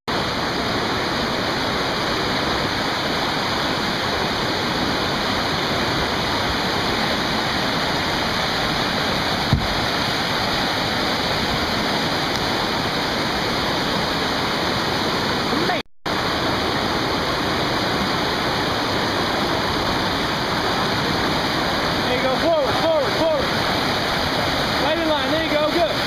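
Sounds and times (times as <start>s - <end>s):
river rapids rushing: 0.1s - 26.0s
brief thump: 9.5s - 9.8s.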